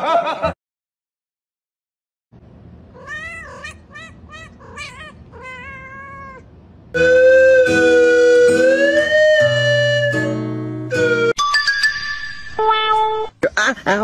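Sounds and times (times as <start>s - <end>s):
cat meowing: 2.9s - 6.5s.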